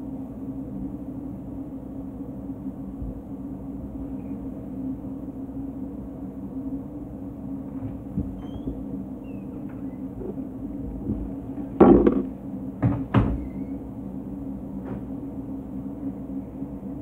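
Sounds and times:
mechanical room hum: 0.0s - 17.0s
sharp knocks: 11.8s - 12.3s.

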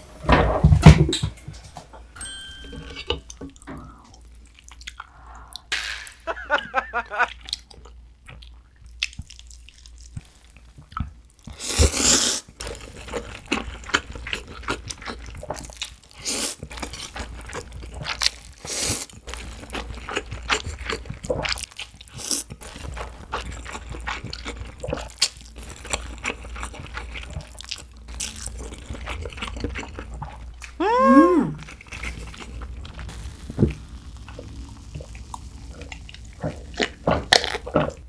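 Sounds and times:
chewing: 3.6s - 5.7s, 7.3s - 30.8s, 31.6s - 33.2s, 34.1s - 38.0s.

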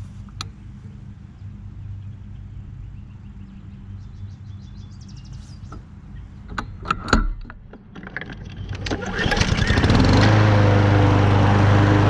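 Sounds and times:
steady low hum: 0.0s - 8.0s
birds chirping: 0.4s - 6.8s, 8.4s - 9.9s
sharp clicks and knocks: 5.7s - 9.5s.

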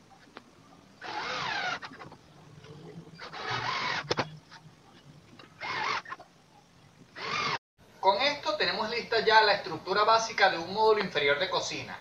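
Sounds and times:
drill motor whine: 1.0s - 2.0s, 3.1s - 4.3s, 5.6s - 6.2s, 7.2s - 7.6s.

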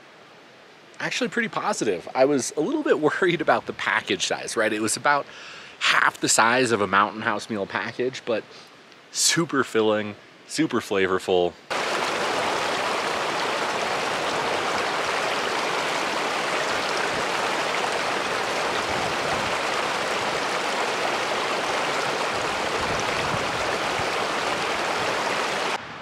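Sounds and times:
stream rushing: 11.7s - 26.0s.

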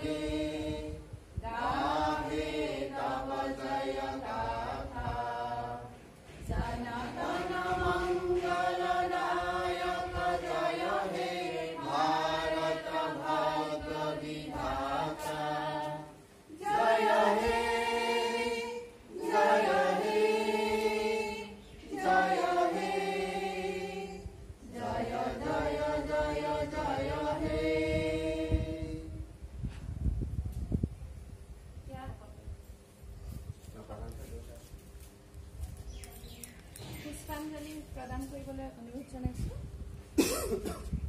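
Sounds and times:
group singing in unison: 0.0s - 29.3s.

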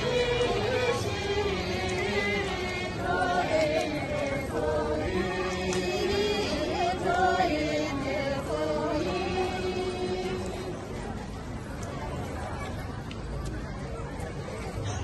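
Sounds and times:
group of voices singing: 0.0s - 11.0s.

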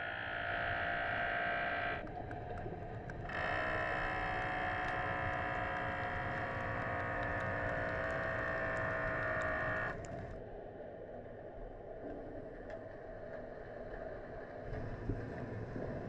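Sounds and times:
faint clicks: 2.0s - 10.4s.

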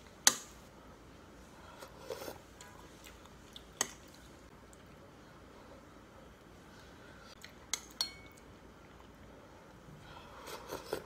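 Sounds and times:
metal spoon clinking on ceramic bowl: 7.9s - 8.4s.

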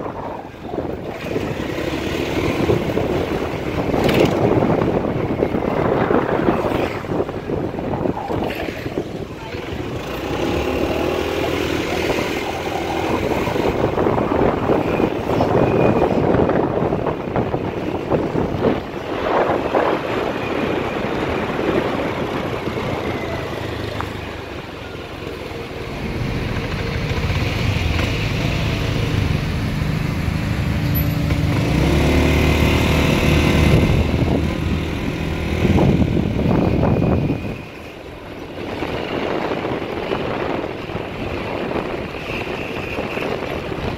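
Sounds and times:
traffic close by: 0.0s - 43.9s
wind rush on microphone: 0.0s - 43.9s.

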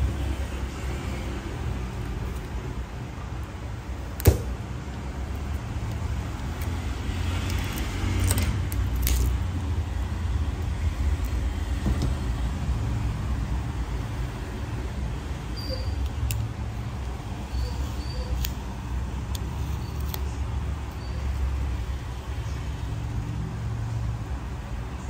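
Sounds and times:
adhesive tab hiss and crackles: 4.2s - 11.6s, 16.0s - 21.0s.

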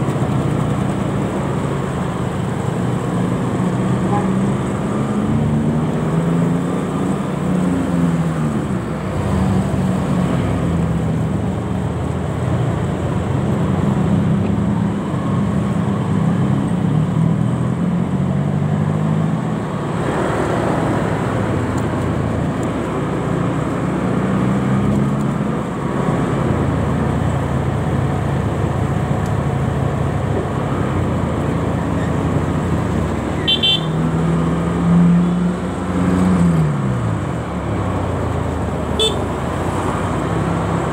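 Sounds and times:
road traffic noise: 0.0s - 40.9s.

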